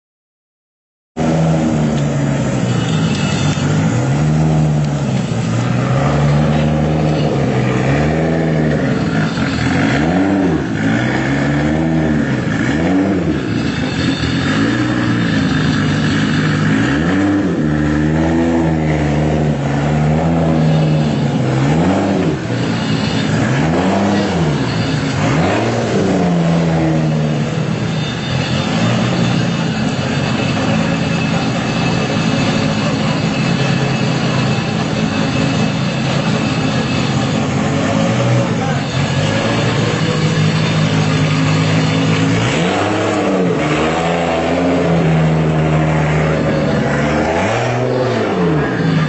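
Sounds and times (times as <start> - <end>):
car engine idling and revving: 1.2 - 49.0.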